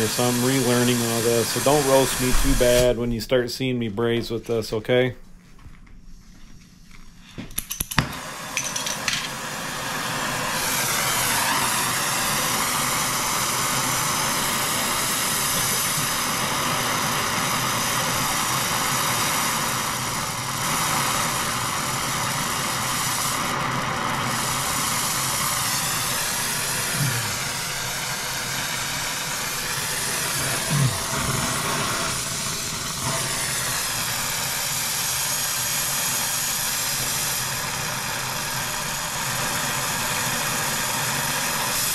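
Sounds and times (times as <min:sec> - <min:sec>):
torch flame hissing: 0:00.0 - 0:03.5, 0:08.0 - 0:41.9
torch igniter clicks: 0:00.2 - 0:03.2.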